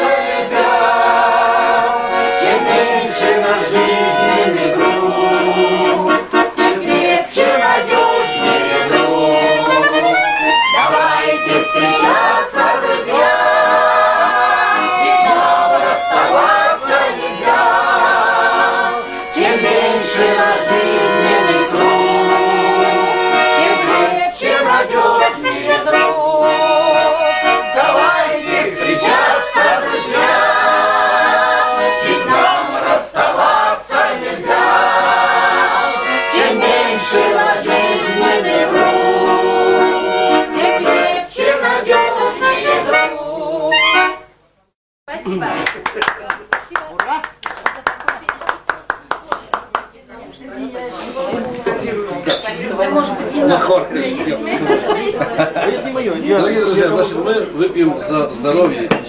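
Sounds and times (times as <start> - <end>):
accordion playing chords: 0.0 - 44.5, 45.1 - 45.8.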